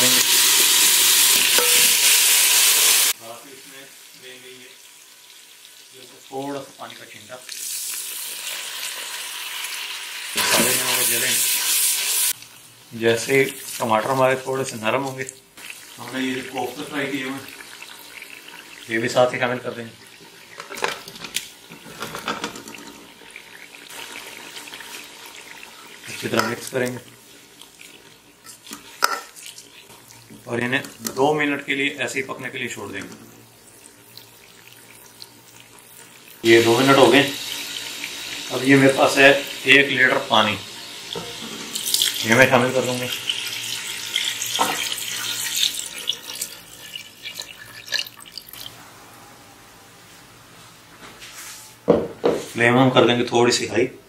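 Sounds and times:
gravy sizzling and bubbling in a pot: 0.0s - 49.1s
water drips: 45.5s - 48.7s.

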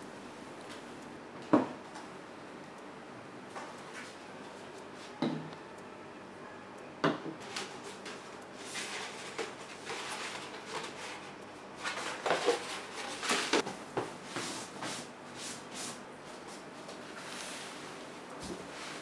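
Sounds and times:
paper rustling and crackling: 8.7s - 13.6s.

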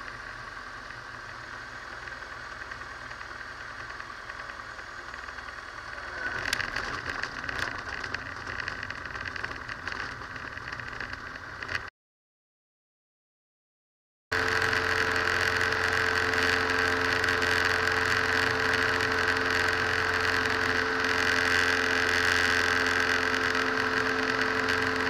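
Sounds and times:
light aircraft engine droning: 0.0s - 11.9s
wheels knocking and rattling on grass: 2.0s - 11.9s.

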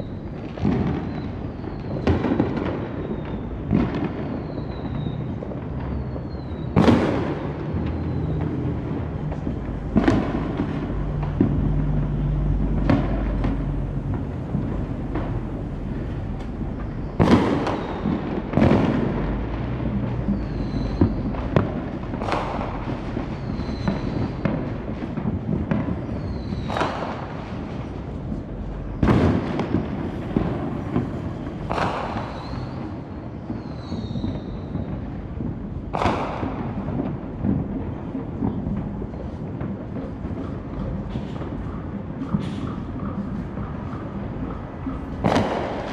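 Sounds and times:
high firework whistles: 0.0s - 35.4s
distant fireworks rumble: 0.0s - 45.9s
loud sharp firework booms: 0.0s - 45.9s.

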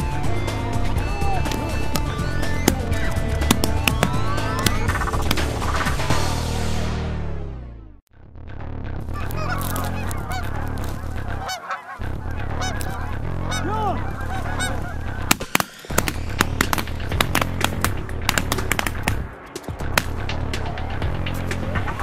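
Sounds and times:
geese honking: 0.0s - 6.0s, 9.0s - 19.1s
shotgun shots: 15.3s - 19.2s.

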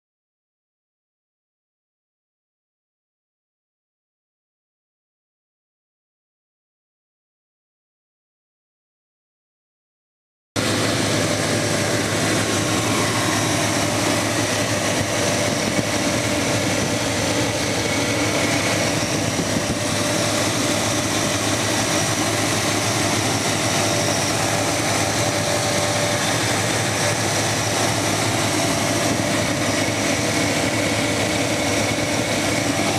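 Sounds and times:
engine idling: 10.6s - 32.9s
faint steady whine: 10.6s - 32.9s.

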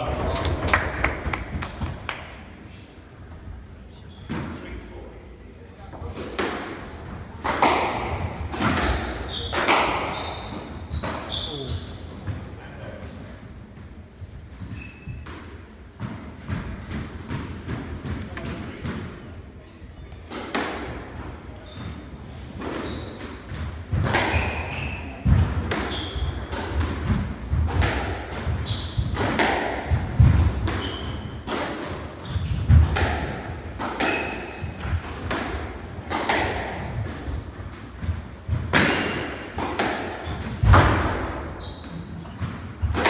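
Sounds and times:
shoes squeaking on wooden floor: 8.6s - 12.5s, 14.4s - 15.2s, 21.6s - 27.6s, 28.5s - 31.4s, 37.1s - 37.8s, 38.4s - 42.9s.

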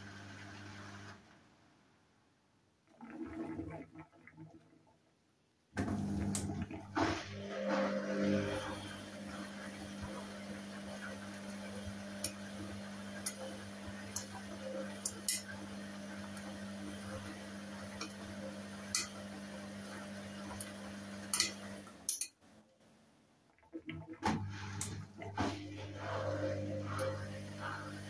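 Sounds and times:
washing machine motor humming: 0.0s - 1.3s, 5.8s - 22.2s, 23.6s - 28.0s.

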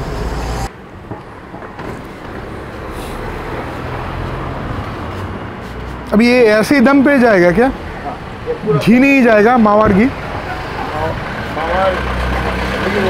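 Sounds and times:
passing motor vehicles hum: 0.0s - 13.0s.

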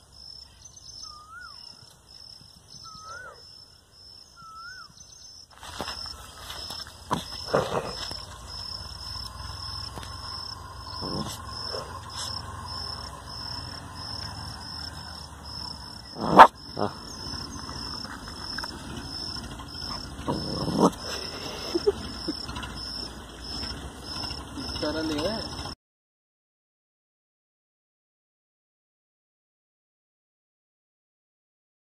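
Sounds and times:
insect chirping: 0.0s - 25.8s
low growl: 7.1s - 25.8s
puppy barking: 16.2s - 17.0s, 19.8s - 21.2s.

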